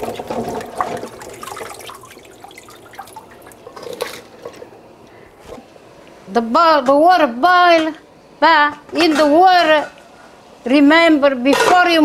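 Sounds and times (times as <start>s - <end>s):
water splashing in a steel sink: 0.0s - 4.3s.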